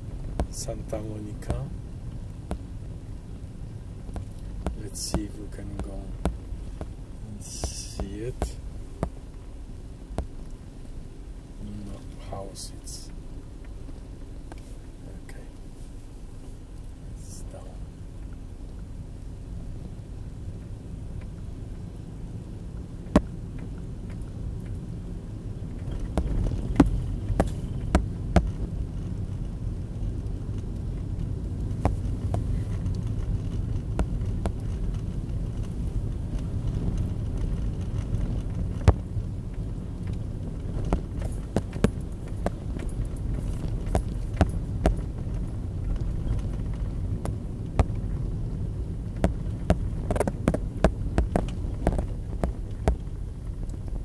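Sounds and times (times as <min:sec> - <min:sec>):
car engine and tyre rumble: 0:00.0 - 0:54.0
sharp clicks and knocks: 0:04.1 - 0:09.4, 0:25.7 - 0:29.5, 0:30.2 - 0:54.0.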